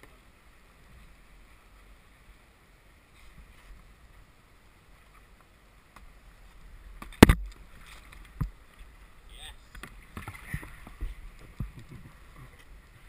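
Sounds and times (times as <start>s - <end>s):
faint water lapping: 0.0s - 13.0s
kayak knocking against rock: 7.0s - 8.6s, 9.7s - 12.2s.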